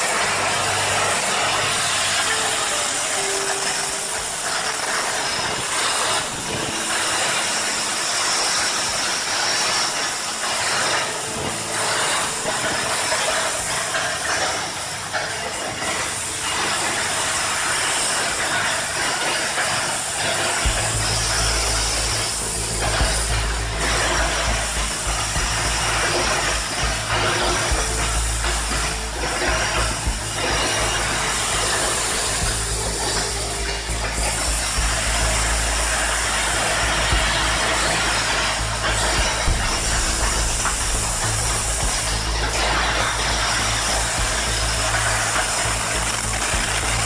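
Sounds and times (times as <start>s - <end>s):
machine parts rattling: 0.0s - 47.0s
low hum: 20.6s - 47.0s.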